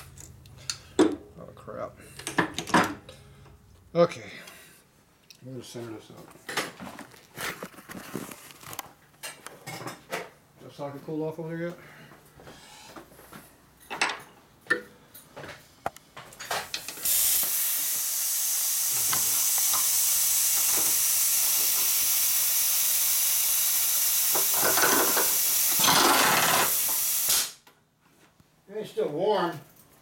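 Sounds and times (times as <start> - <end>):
loud steady hiss: 16.7 - 27.6.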